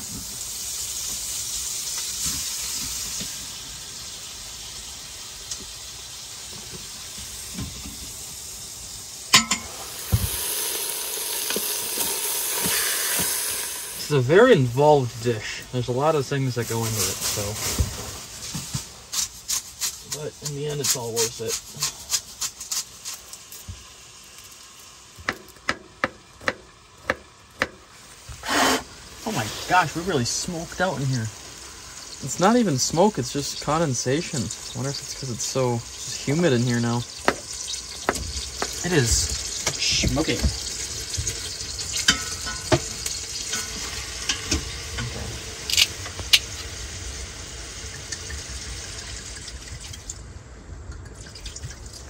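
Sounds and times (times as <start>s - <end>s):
meat sizzling in a pan: 0.0s - 49.7s
sharp clink: 9.3s - 9.8s.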